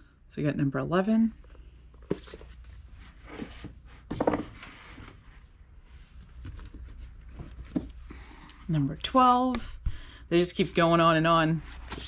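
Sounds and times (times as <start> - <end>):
books rustling: 2.0 - 8.0, 11.6 - 12.0
book sliding and knocking on shelf: 3.2 - 5.3.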